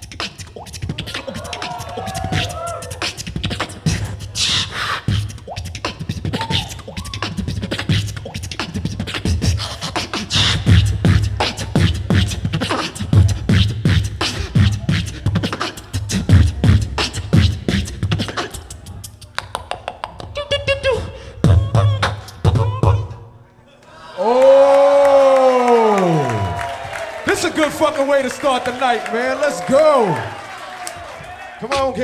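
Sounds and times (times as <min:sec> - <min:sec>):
beatboxing through a microphone: 0:00.0 - 0:23.4, 0:31.6 - 0:32.0.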